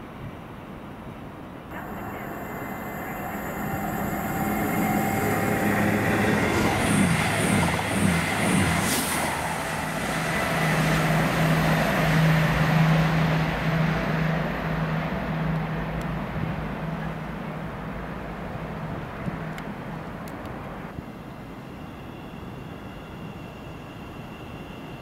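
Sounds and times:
steady pulsing hum: 0:01.7 - 0:14.1
train running: 0:01.7 - 0:25.0.

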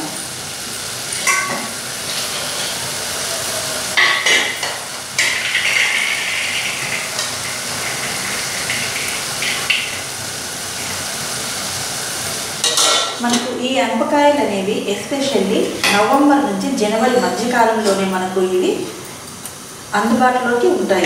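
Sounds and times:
paste sizzling in oil: 0:00.6 - 0:12.8.

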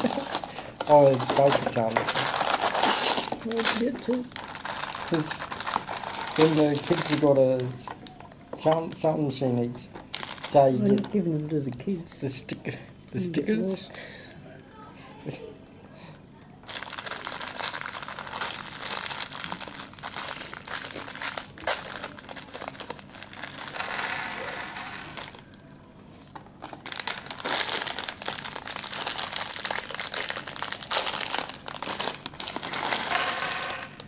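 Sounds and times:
plastic bags crinkling: 0:00.0 - 0:09.4, 0:10.0 - 0:11.2, 0:16.6 - 0:25.6, 0:26.2 - 0:34.0.

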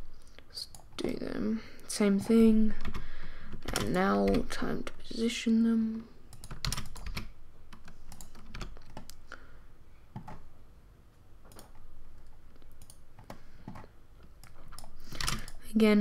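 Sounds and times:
keyboard and mouse clicks: 0:02.2 - 0:04.7, 0:06.3 - 0:09.2, 0:10.1 - 0:10.5, 0:11.4 - 0:15.7.

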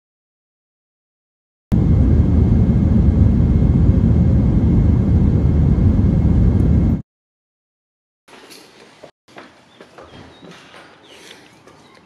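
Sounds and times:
airliner engine rumble: 0:01.7 - 0:07.0.

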